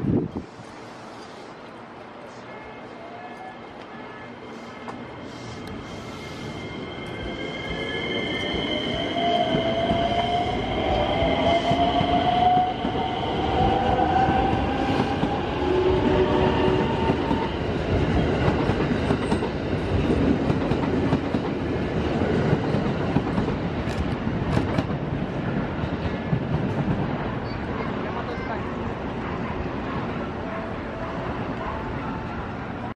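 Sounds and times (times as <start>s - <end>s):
train wheels rumbling on rail: 3.7s - 32.9s.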